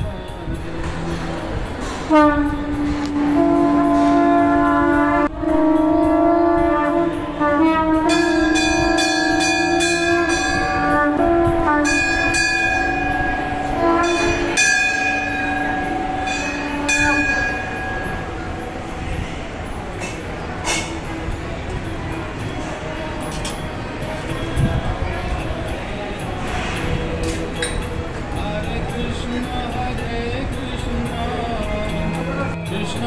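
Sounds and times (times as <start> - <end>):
conch shell blown: 0.0 - 19.0
bells ringing: 0.0 - 33.0.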